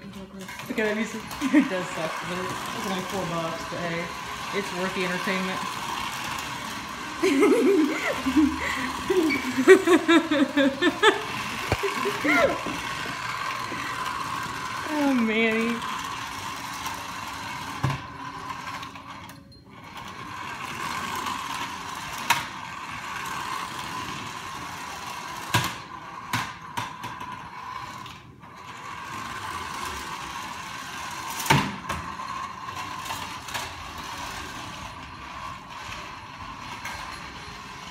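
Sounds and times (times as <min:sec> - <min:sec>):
toy car motor whirring: 0:00.0 - 0:37.9.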